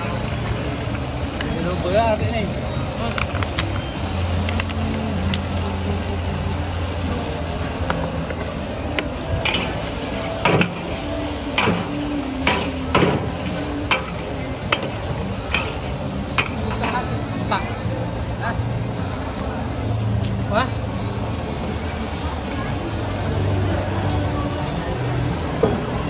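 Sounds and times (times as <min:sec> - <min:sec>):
food sizzling: 0:00.0 - 0:20.0
spatula clanking on a wok: 0:09.4 - 0:10.9, 0:11.6 - 0:17.0.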